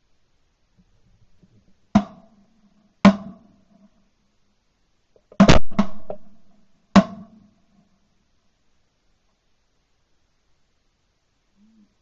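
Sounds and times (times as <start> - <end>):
shotgun shots: 5.4 - 6.4.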